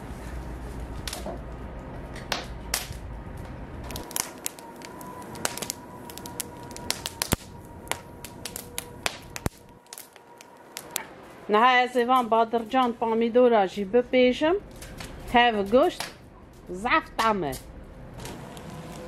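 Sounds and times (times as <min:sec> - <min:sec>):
low rumble: 0:00.0 - 0:11.8
wood fire crackling and popping: 0:00.0 - 0:13.0, 0:14.7 - 0:19.0.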